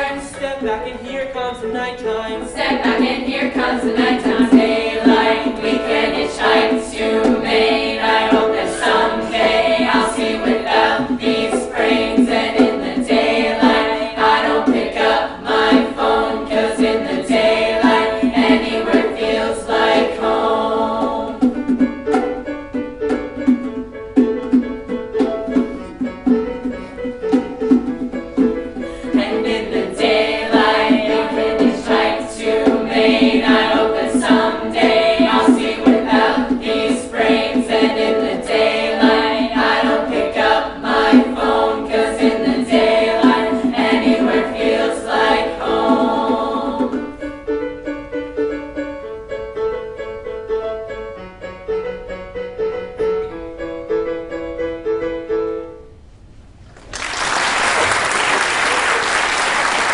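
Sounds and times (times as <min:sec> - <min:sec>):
choir singing in chorus: 0:02.4 - 0:21.8, 0:28.8 - 0:47.2
audience applause: 0:56.8 - 0:59.9.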